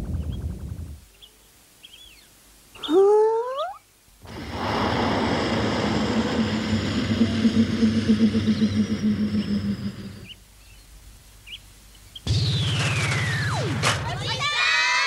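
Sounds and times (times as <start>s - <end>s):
cartoon vehicle engine rumbling: 4.2s - 10.4s
swooping cartoon sound effect: 4.3s - 10.4s, 12.6s - 14.0s.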